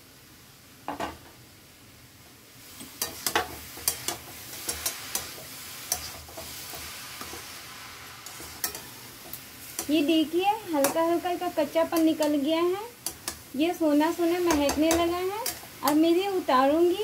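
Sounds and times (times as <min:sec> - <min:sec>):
vegetables sizzling in oil: 0:00.0 - 0:17.0
metal spatula scraping pan: 0:02.9 - 0:07.6, 0:08.2 - 0:10.0.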